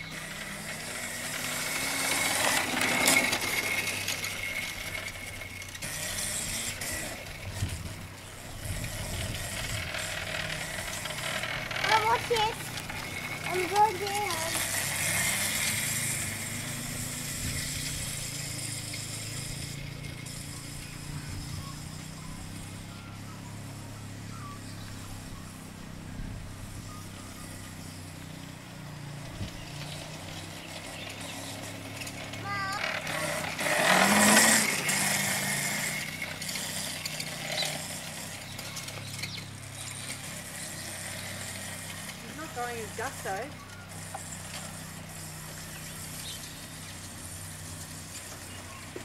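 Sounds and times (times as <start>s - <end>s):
quad bike motor running: 0.0s - 49.0s.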